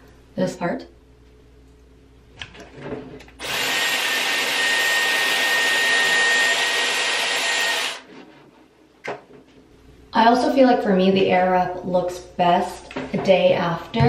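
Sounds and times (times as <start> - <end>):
hair styler air rush and whine: 3.4 - 8.1.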